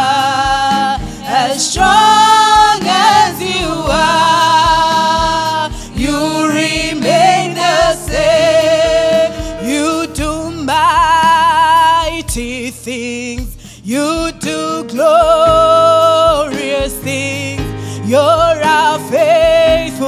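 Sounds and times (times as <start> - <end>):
voices singing held notes: 0.0 - 11.4
band accompaniment: 0.0 - 20.0
low drum beat: 0.0 - 20.0.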